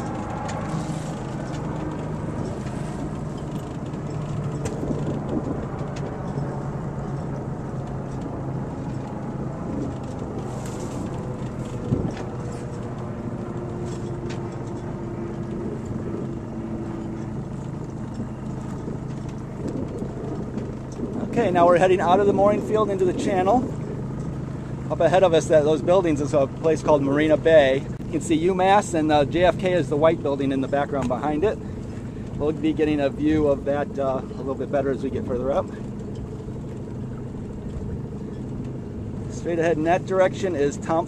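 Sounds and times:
boat engine running: 0.0 - 41.0
water noise: 0.0 - 41.0
wind: 0.0 - 41.0.

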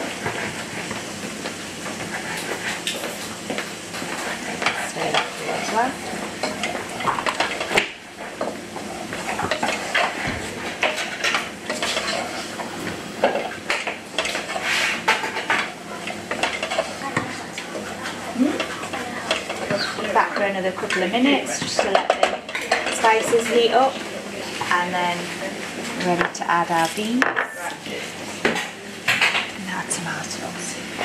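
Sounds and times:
vegetables sizzling: 0.0 - 29.3
wooden spoon scraping a saucepan: 1.9 - 3.3, 4.0 - 17.0, 17.8 - 24.0.

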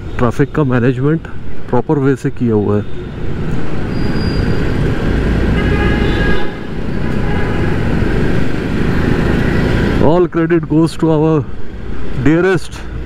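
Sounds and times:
vehicle horn: 5.5 - 7.9.

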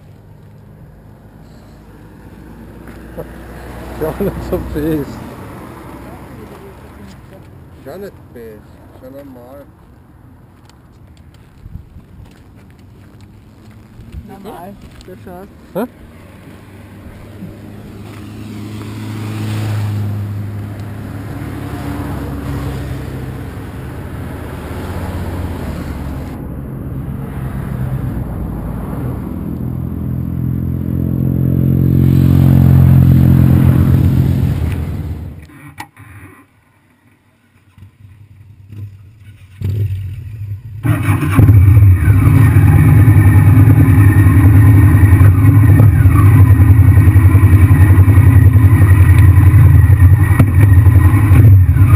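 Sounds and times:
motorcycle passing: 0.0 - 35.5, 37.1 - 51.9
motorcycle engine starting and idling: 34.4 - 51.9.

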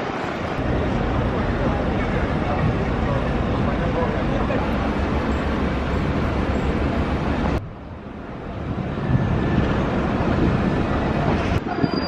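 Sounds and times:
street traffic rumble: 0.0 - 12.0
wind on microphone: 8.4 - 12.0.

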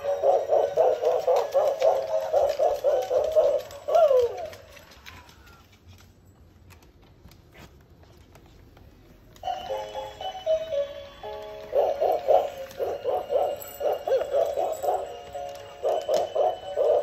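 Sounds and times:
electronic toy jingle: 9.5 - 17.0.

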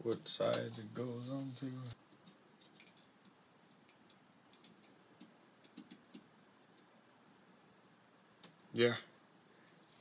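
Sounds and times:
faint small clicks: 9.6 - 10.0.

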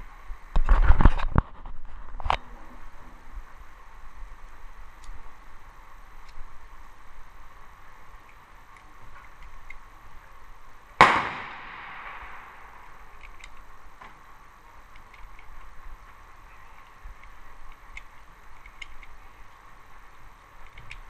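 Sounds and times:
gunshot with echo: 11.0 - 12.8
cartridges clicking into magazine: 11.0 - 13.7, 17.2 - 19.2.

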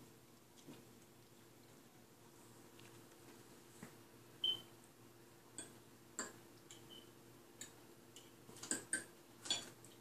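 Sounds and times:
faint steady hum: 0.0 - 10.0
cutlery clinking on plates: 8.6 - 9.8.

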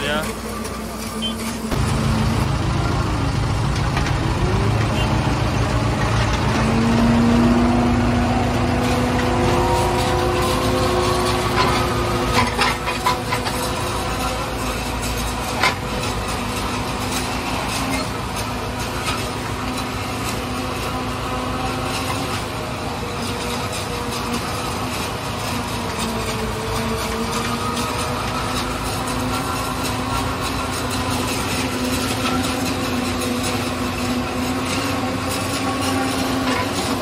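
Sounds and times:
forage harvester chopping corn: 0.0 - 5.1, 5.9 - 37.0
tractor engine running: 0.0 - 37.0.

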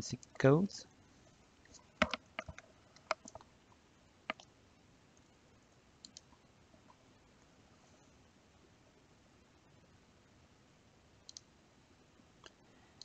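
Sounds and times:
computer keyboard typing: 2.0 - 3.5, 4.3 - 4.5.

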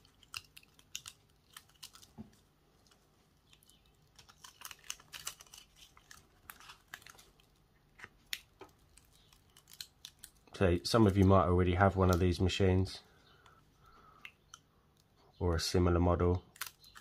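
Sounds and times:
vinyl sheet peeling: 0.0 - 10.4.

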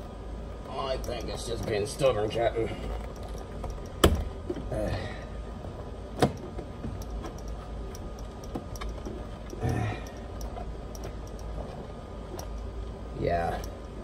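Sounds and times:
panel rustling and ticks: 6.2 - 12.7.

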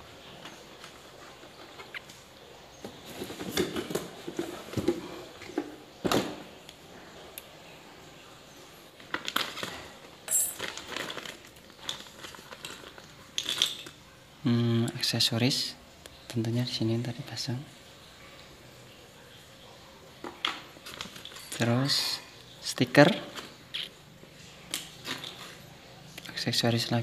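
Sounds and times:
plastic bag crinkling: 9.0 - 14.0.

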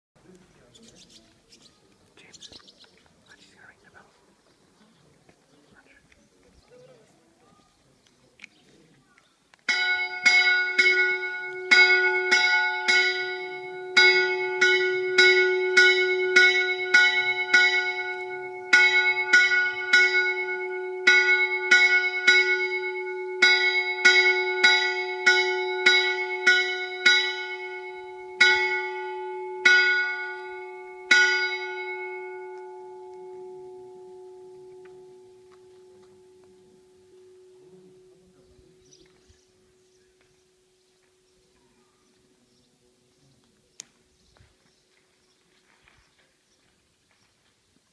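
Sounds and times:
bells clanging: 9.7 - 39.1
long bell hum: 9.8 - 39.0.

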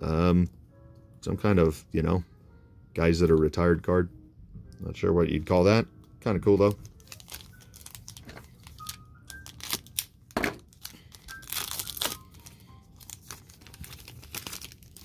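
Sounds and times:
foil wrapper crinkling and tearing: 6.4 - 15.0.

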